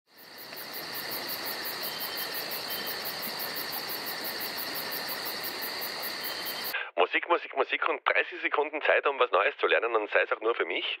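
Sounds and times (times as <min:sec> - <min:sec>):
insects chirping: 0:00.1 - 0:06.8.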